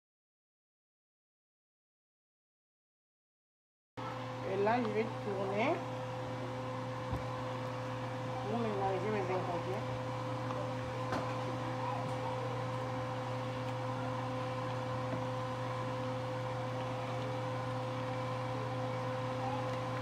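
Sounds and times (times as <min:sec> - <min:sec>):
steady machine hum: 0:04.0 - 0:20.0.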